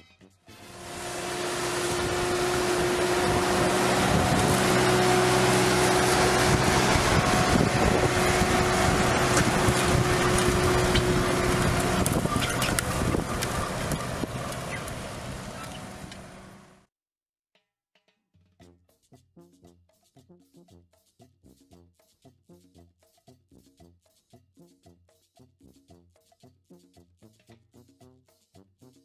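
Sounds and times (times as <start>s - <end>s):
steady hum: 0.6s - 16.7s
tractor diesel engine under load: 0.6s - 16.9s
wind buffeting microphone: 1.9s - 5.0s, 6.0s - 15.7s.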